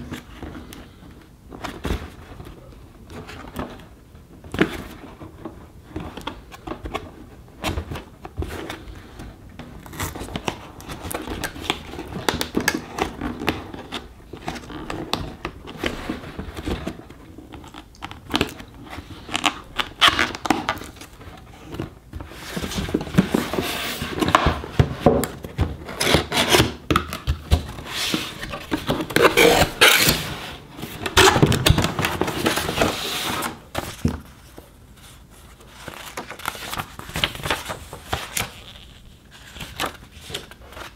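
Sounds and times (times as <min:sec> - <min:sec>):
cardboard scraping and rubbing: 0:21.6 - 0:25.2, 0:27.5 - 0:34.4.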